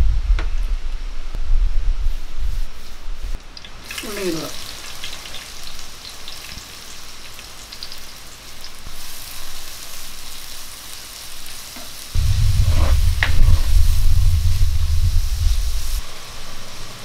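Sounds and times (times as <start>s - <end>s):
onions sizzling in hot oil: 2.5s - 17.0s
loud low rumble: 12.2s - 16.0s.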